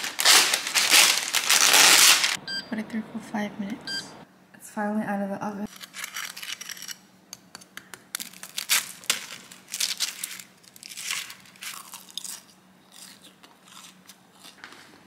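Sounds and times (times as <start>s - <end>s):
pastry crust crunching: 7.5s - 15.0s.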